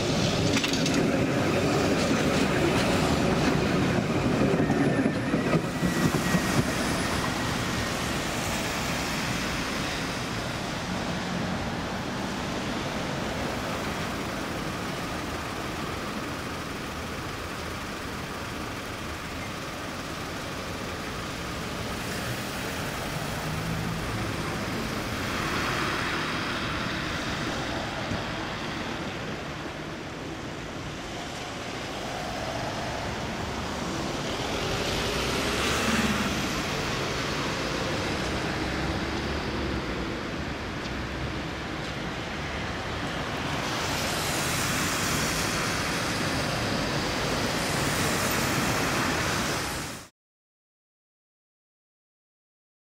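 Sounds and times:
tram running through curve: 0.0 - 18.8, 19.9 - 49.8
vehicles passing: 0.0 - 50.1.

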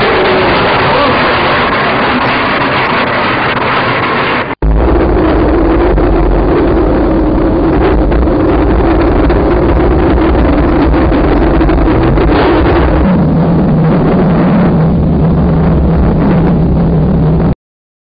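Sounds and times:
car engine at high revs: 0.0 - 17.5
rushing noise: 0.0 - 17.6.

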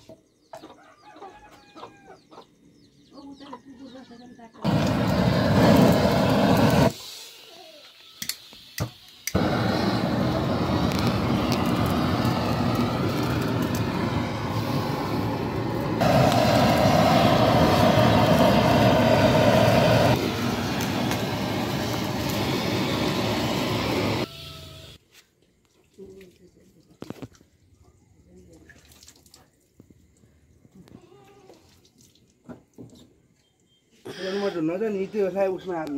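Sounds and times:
gas torch burning: 4.6 - 7.3, 7.9 - 24.4.

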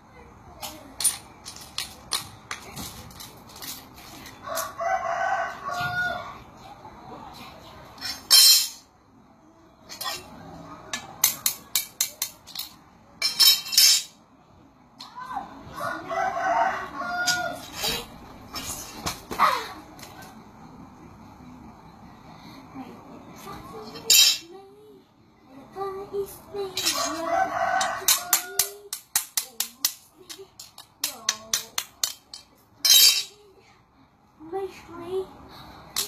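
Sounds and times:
rooster crowing: 4.4 - 6.4, 15.7 - 17.7, 26.9 - 28.9.

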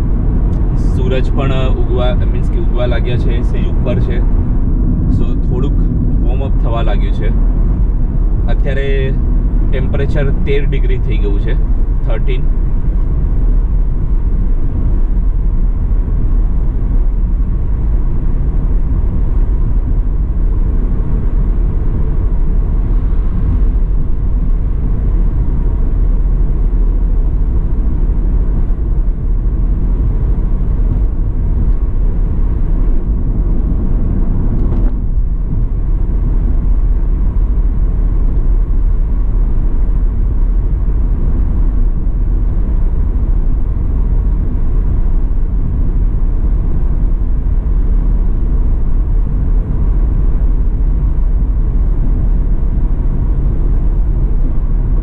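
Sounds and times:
car road rumble inside cabin: 0.0 - 55.0.

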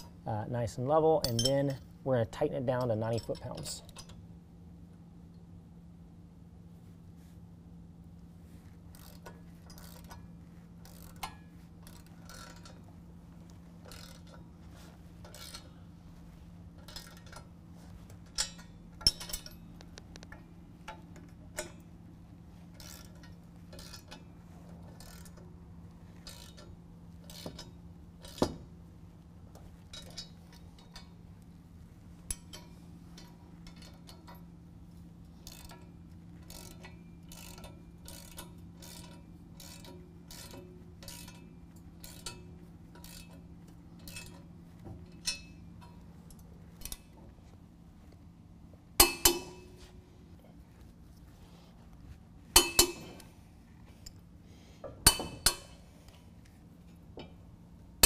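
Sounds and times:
steady low hum: 0.0 - 58.0
ratchet wrench clicking: 8.9 - 10.2, 10.8 - 12.8, 13.8 - 14.4, 15.2 - 15.7, 22.8 - 24.2, 25.0 - 25.5, 26.2 - 28.6, 35.4 - 43.4.

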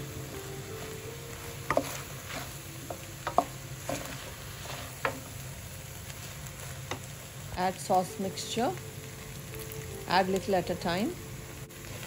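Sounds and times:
frying sizzle: 0.0 - 12.0
spatula tapping and scraping pan: 1.6 - 5.3.

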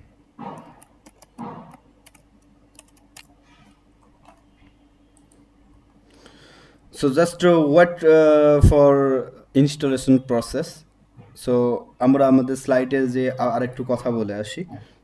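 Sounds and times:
keyboard keystrokes: 0.6 - 3.3.

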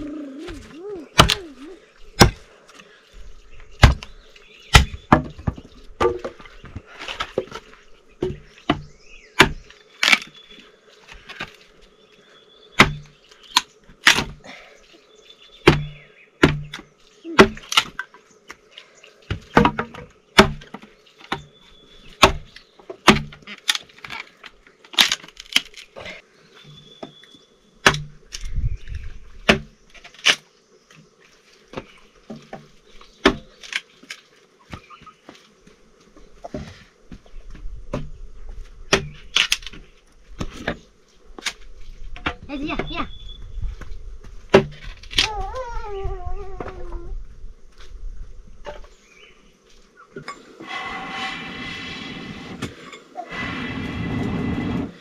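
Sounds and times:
sharp knocks and cracks: 2.2 - 2.4, 3.8 - 4.1, 4.7 - 6.5, 7.2 - 10.4, 12.8 - 14.4, 15.6 - 18.6, 19.3 - 21.5, 22.2 - 25.9, 27.8 - 28.6, 29.4 - 30.4, 31.7 - 34.8, 37.5 - 38.2, 38.9 - 43.0, 44.5 - 45.5.

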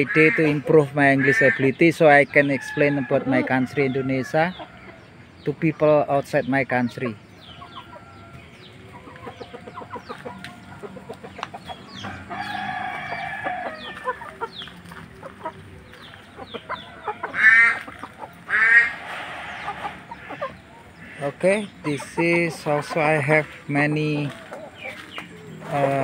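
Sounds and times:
chickens squawking: 0.0 - 26.0
chicken crowing: 12.0 - 21.2.

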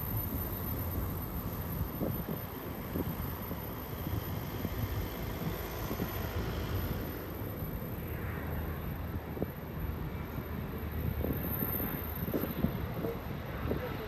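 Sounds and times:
freight train wheels rumbling: 0.0 - 14.0
faint train clanks: 10.2 - 14.0.

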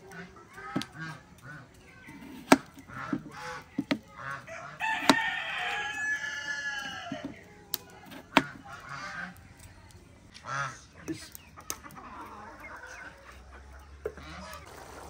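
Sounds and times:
rooster crowing: 4.5 - 7.4.

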